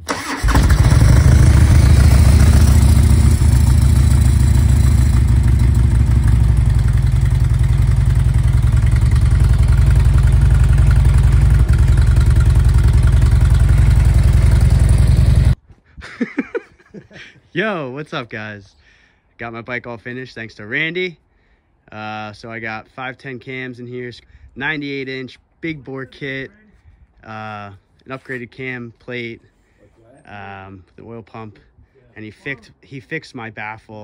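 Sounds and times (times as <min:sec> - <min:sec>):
motorcycle engine starting and idling: 0:00.0 - 0:15.6.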